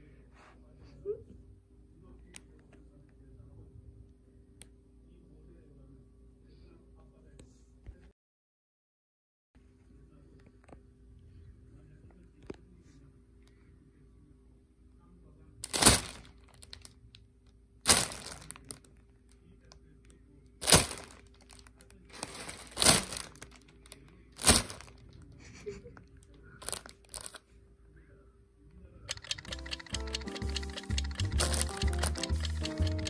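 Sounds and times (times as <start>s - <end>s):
plastic bag crinkling: 15.6s - 16.9s, 17.9s - 18.9s, 20.6s - 25.0s, 26.6s - 27.4s
music: 29.3s - 33.0s.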